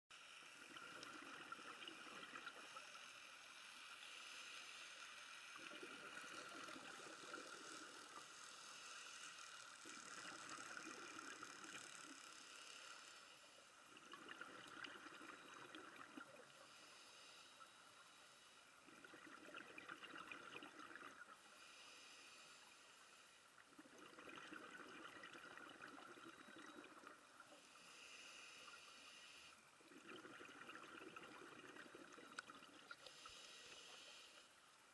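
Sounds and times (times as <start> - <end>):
exhaled bubbles underwater: 0.6 - 2.9, 5.6 - 8.2, 9.8 - 12.3, 13.9 - 16.6, 18.8 - 21.4, 23.6 - 27.4, 29.8 - 33.0
scuba regulator breathing: 16.6 - 18.6, 21.4 - 23.4, 27.6 - 29.6, 32.9 - 34.6.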